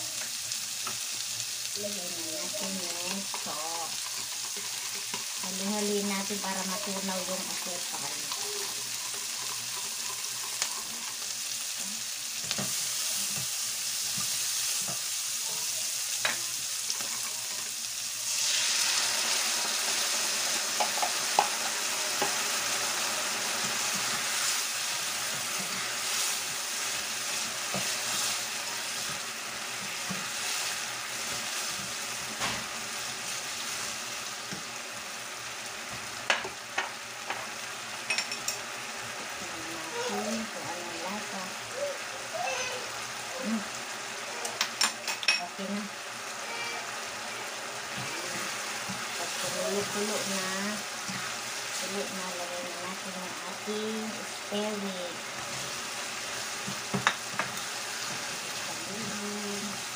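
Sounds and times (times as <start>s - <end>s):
sauce sizzling in a wok: 0.0s - 59.9s
spatula stirring in a wok: 2.4s - 34.8s, 46.5s - 59.9s.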